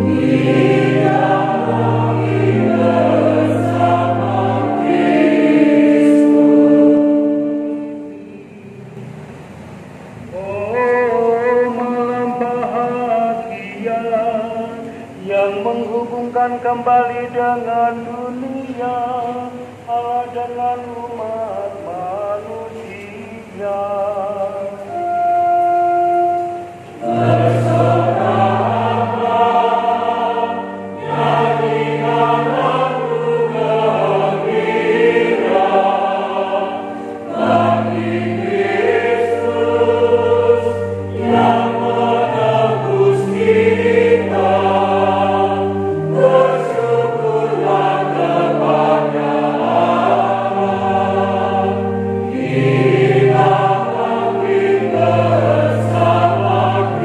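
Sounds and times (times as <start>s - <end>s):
choir singing in parts: 0.0s - 9.6s, 10.2s - 57.0s
choir breaths: 26.4s - 57.0s.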